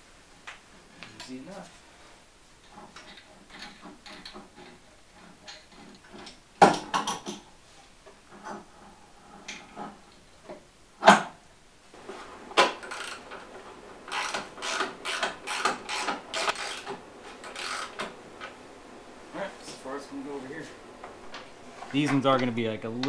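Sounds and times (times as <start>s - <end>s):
tools and bolts clanking: 2.6s - 7.5s, 12.0s - 18.7s.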